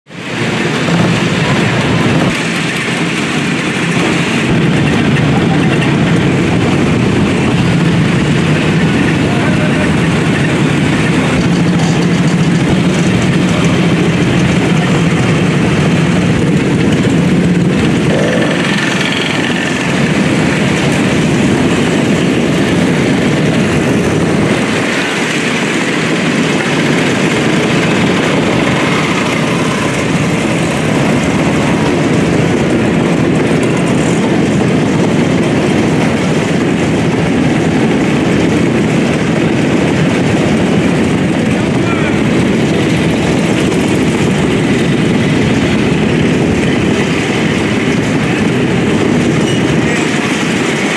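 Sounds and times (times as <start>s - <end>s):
motorcycle engines idling and revving: 0.0s - 50.9s
low engine hum: 0.1s - 50.9s.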